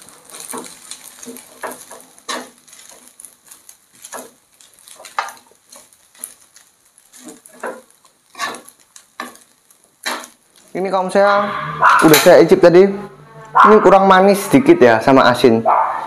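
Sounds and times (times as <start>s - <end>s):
tongs clacking and scraping pan: 0.0s - 10.9s
faint sizzle of frying pasta: 0.0s - 11.2s.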